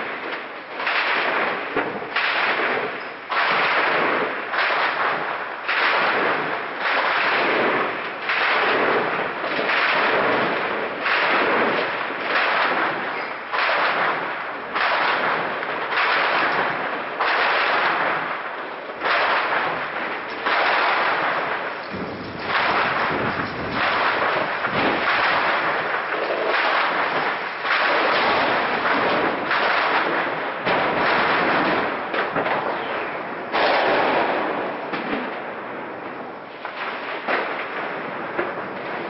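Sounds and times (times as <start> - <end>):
gunshots with long echo: 0.0 - 39.0.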